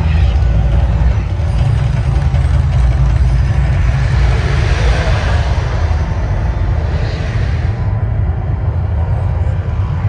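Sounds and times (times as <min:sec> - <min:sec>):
deep rumble: 0:00.0 - 0:10.0
fire jets rushing: 0:02.0 - 0:10.0.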